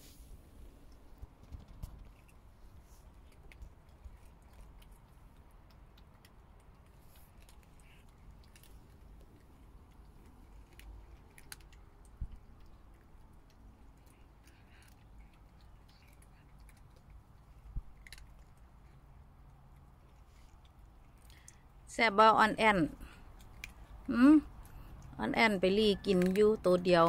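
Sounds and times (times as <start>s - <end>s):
small clicks and ticks: 0.8s - 21.7s.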